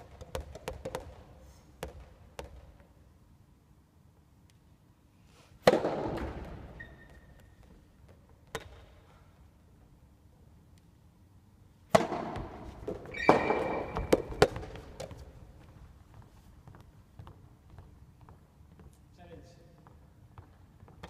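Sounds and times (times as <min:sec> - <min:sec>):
sneakers squeaking on floor: 0:06.4 - 0:08.8, 0:12.3 - 0:19.0
ball popping off rackets and floor: 0:11.9 - 0:15.4.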